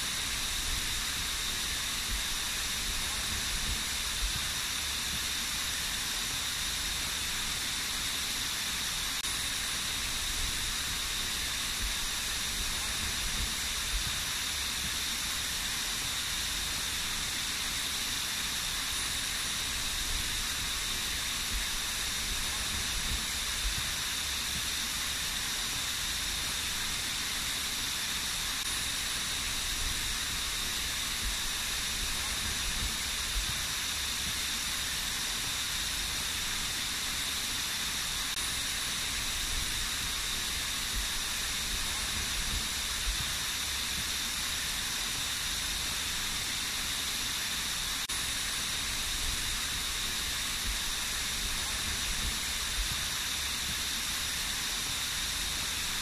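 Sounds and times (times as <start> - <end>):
small waterfall splashing: 0.0 - 56.0.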